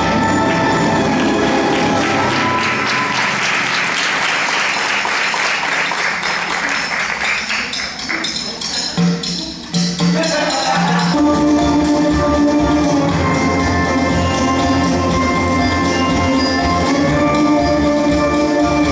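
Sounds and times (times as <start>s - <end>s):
audience applauding: 0.4s - 8.2s
backing music with low pulsing notes: 10.6s - 18.9s.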